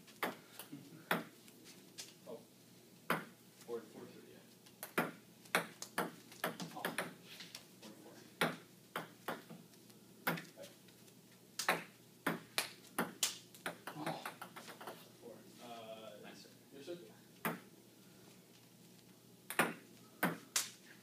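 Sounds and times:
ball bouncing on table: 0:03.1 - 0:03.3, 0:04.8 - 0:07.2, 0:11.6 - 0:15.0, 0:17.4 - 0:17.6, 0:19.5 - 0:20.4.

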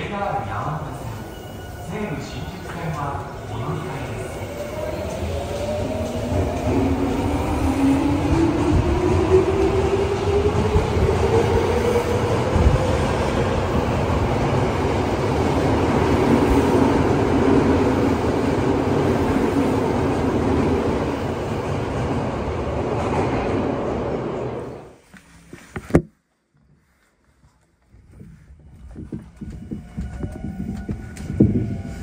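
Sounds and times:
wheels rumbling on rail: 0:28.6 - 0:32.0.

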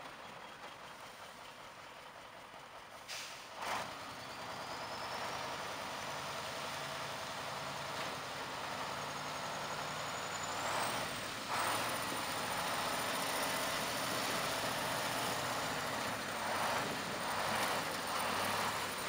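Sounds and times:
truck diesel engine: 0:00.0 - 0:19.0.

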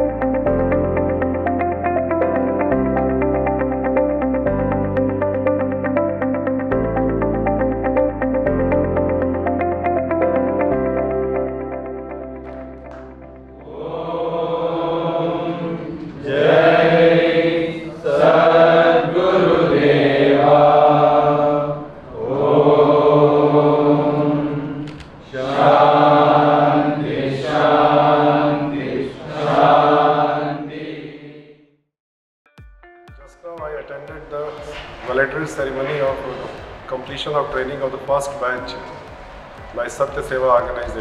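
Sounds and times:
men chanting in unison: 0:13.7 - 0:31.4.

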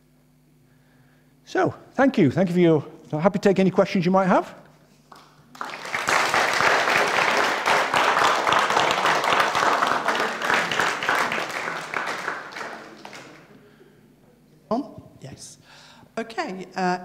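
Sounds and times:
audience applauding: 0:05.1 - 0:13.6.

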